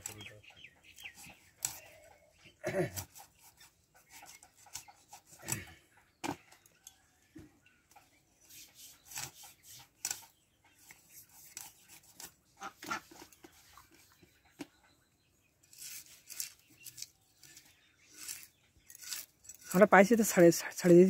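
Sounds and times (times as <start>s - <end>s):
fish scraping against blade: 15.7s - 21.0s.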